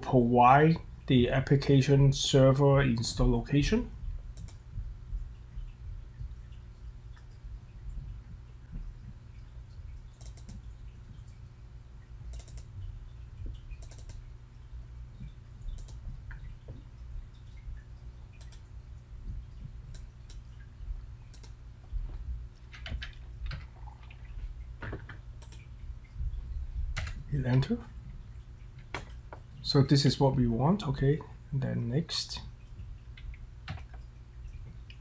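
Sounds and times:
low steady hum: 0:00.0 - 0:35.0
computer mouse clicks: 0:04.4 - 0:04.6, 0:10.2 - 0:10.6, 0:12.3 - 0:12.7, 0:13.7 - 0:14.2, 0:15.7 - 0:16.1, 0:18.4 - 0:18.7, 0:21.3 - 0:21.6, 0:25.0 - 0:25.7
keyboard keystrokes: 0:10.2 - 0:10.6, 0:12.3 - 0:12.7, 0:13.8 - 0:14.2, 0:15.8 - 0:16.0.

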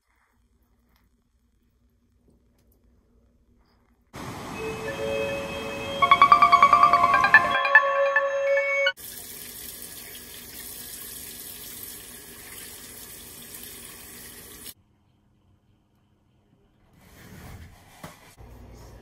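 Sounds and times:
held musical tones: 0:04.2 - 0:09.0
faucet running into sink: 0:09.0 - 0:14.7.

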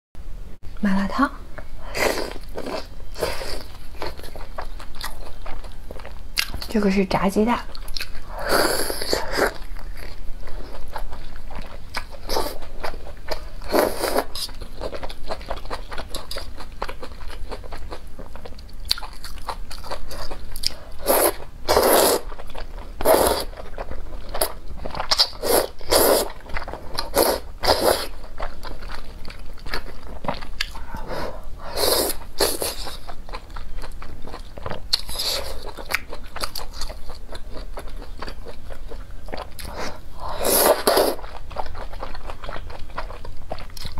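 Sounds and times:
biting and chewing crisp food: 0:02.1 - 0:06.8, 0:07.7 - 0:43.9
slurping noodles: 0:21.0 - 0:22.3, 0:23.0 - 0:23.5, 0:25.4 - 0:26.4, 0:27.1 - 0:28.1.

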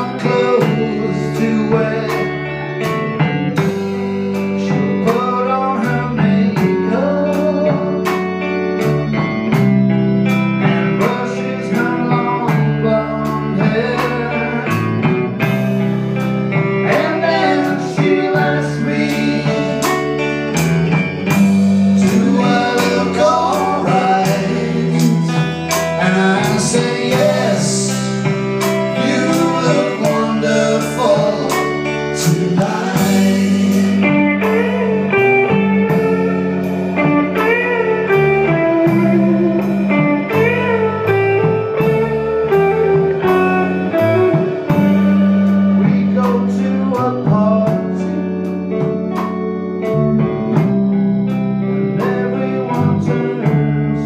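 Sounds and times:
man singing: 0:00.0 - 0:03.7, 0:04.4 - 0:08.2, 0:10.6 - 0:15.6, 0:16.6 - 0:20.6, 0:21.3 - 0:35.6, 0:44.3 - 0:48.6, 0:51.5 - 0:54.0
electric guitar lead: 0:00.0 - 0:54.0
live band playing blues-rock: 0:00.0 - 0:54.0.

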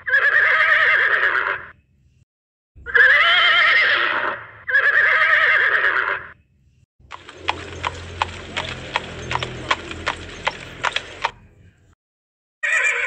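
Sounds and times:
horse whinnying: 0:00.0 - 0:01.7, 0:02.9 - 0:06.3, 0:12.6 - 0:13.0
hooves clip-clopping at a walk: 0:07.1 - 0:11.5.

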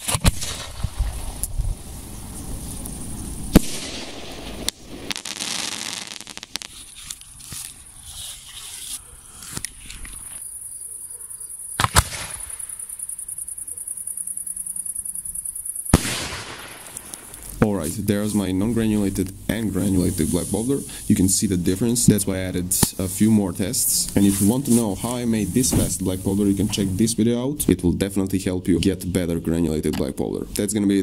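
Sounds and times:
firework mortar bang: 0:00.0 - 0:01.4, 0:03.5 - 0:06.8, 0:15.9 - 0:17.0
sharp cracks: 0:00.0 - 0:01.7, 0:02.7 - 0:07.7, 0:11.8 - 0:13.0, 0:15.9 - 0:19.3
black powder hissing: 0:00.0 - 0:09.4, 0:15.9 - 0:27.2.

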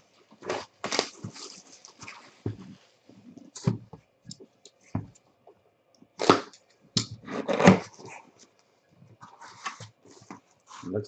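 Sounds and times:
cardboard scraping and rustling: 0:00.4 - 0:02.8, 0:07.2 - 0:08.1, 0:09.2 - 0:11.0.

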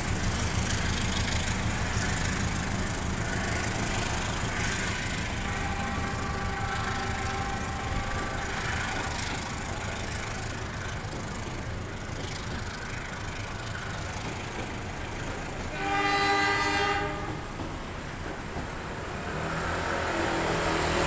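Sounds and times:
train wheels rumbling on track: 0:00.0 - 0:21.0
train horn: 0:03.6 - 0:10.1, 0:15.6 - 0:17.7, 0:19.4 - 0:21.0.

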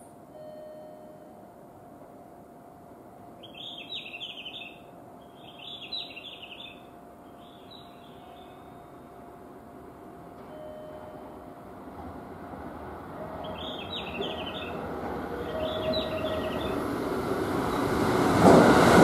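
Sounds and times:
faint train rumble: 0:00.0 - 0:19.0
small birds chirping: 0:03.4 - 0:08.6, 0:13.4 - 0:16.9.

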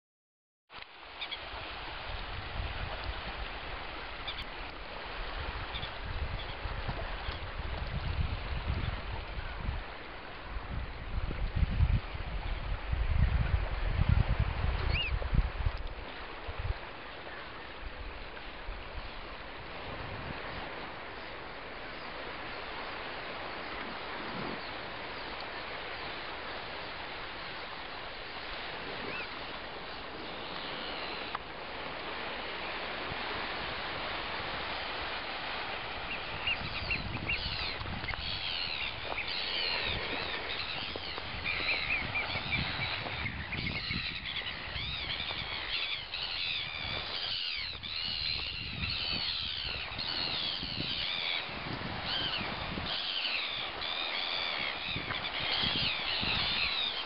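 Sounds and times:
wind noise: 0:01.4 - 0:57.0
birds piping: 0:36.1 - 0:57.0.

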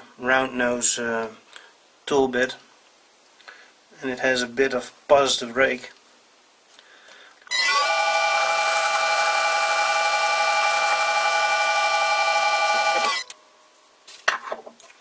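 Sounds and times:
metal lathe motor whine: 0:07.5 - 0:13.3.

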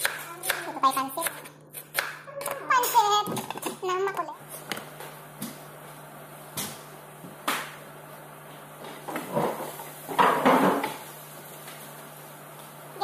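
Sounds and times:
dishes and utensils clattering: 0:02.5 - 0:04.2
knocks on kitchen counter: 0:10.2 - 0:11.0.

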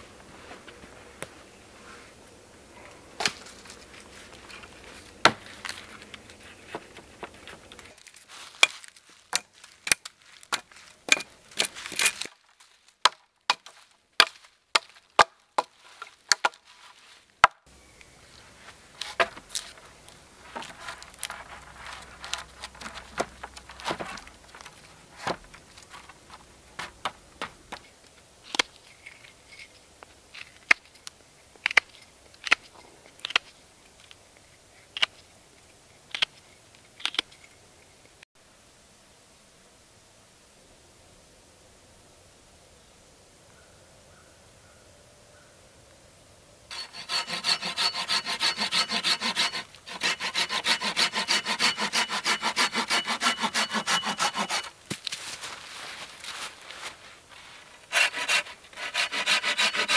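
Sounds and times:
hatchet chopping wood: 0:13.0 - 0:15.7, 0:16.3 - 0:16.6, 0:17.4 - 0:17.6, 0:46.7 - 0:54.7
knife whittling a stick: 0:46.7 - 0:54.7.

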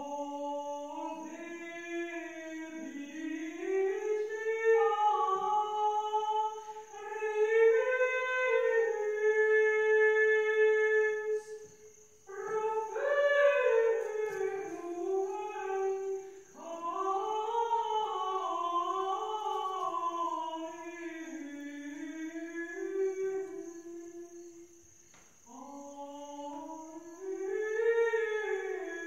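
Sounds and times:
person humming a slow melody: 0:12.3 - 0:24.8.

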